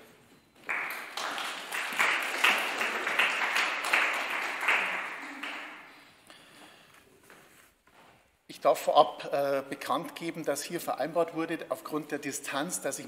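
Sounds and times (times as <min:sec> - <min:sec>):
audience applauding: 0:00.6 - 0:06.1.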